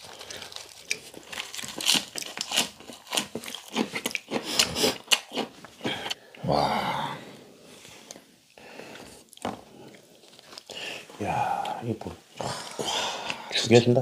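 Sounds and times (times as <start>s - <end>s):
wet crunchy chewing: 0.0s - 6.2s
short vocal sound: 6.4s - 7.4s.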